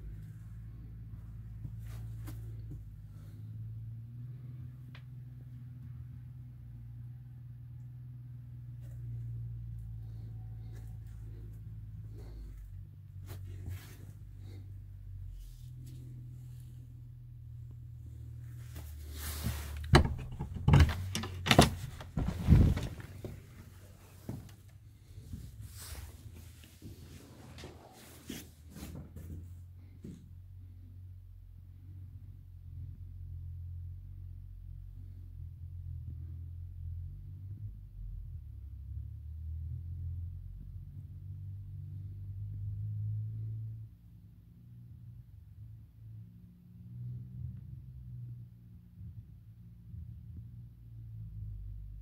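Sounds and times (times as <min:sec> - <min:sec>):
steady low rumble: 0:00.0 - 0:28.2
shuffling: 0:00.1 - 0:03.4, 0:08.7 - 0:30.3
wooden door knocks and clatters: 0:19.8 - 0:23.3.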